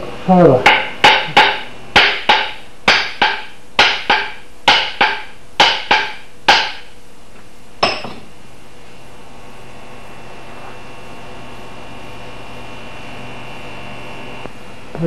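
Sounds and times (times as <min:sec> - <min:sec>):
hammer striking axe head: 0:00.6 - 0:07.0, 0:07.8 - 0:08.3.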